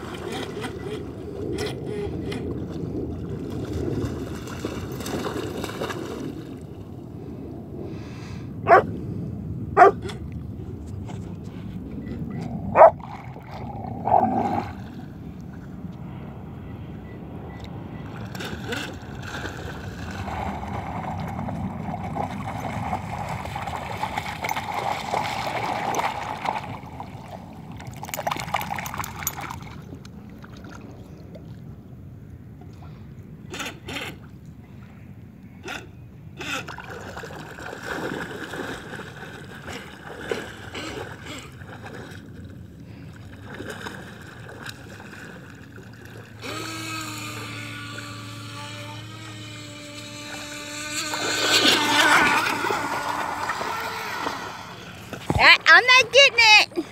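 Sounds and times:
water splashing and gurgling: 0.0 - 7.3, 9.8 - 15.7, 18.0 - 31.8, 35.6 - 56.9
small electric motor whining: 46.3 - 55.2.

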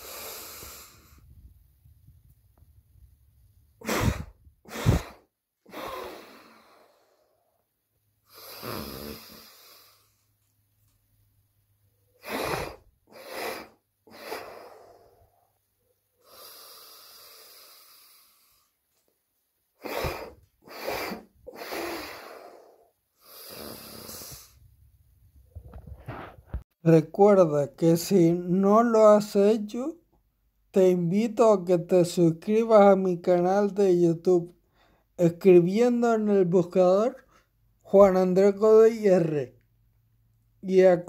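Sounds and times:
man breathing out forcefully: 0.0 - 1.3, 3.8 - 7.4, 12.2 - 15.3, 19.8 - 24.6
man breathing in: 0.0 - 1.4, 3.8 - 7.5, 12.2 - 15.4, 16.2 - 18.8, 19.8 - 24.6.

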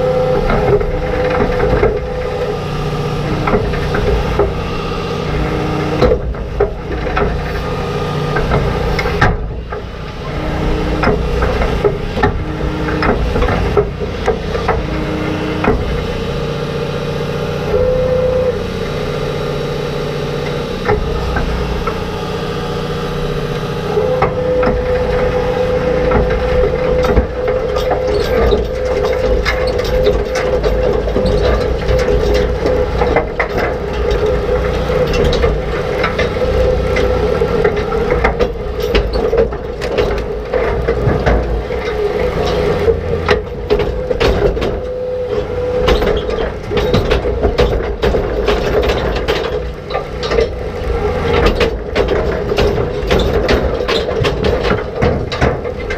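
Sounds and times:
steady machine whine: 0.0 - 55.9
tractor engine drone: 0.0 - 55.9
rocks clattering against steel tines: 20.3 - 55.9.

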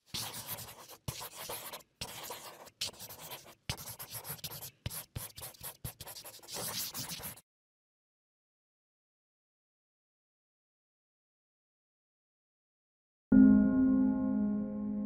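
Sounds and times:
marker scratching on paper: 0.0 - 7.4.

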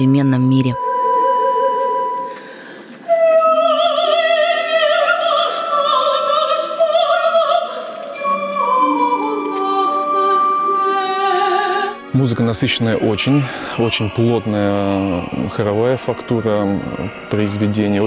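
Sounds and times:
woman singing opera: 0.0 - 12.1
orchestra holding notes: 8.1 - 18.0.

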